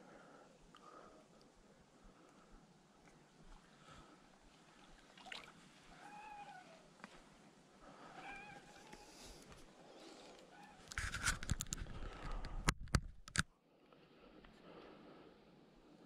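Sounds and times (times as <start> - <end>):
fish splashing in water: 5.1 - 5.6.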